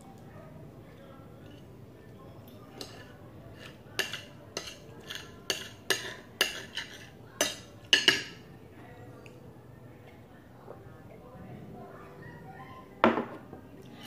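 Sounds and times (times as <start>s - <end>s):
cutlery clinking on plate: 2.8s - 8.4s.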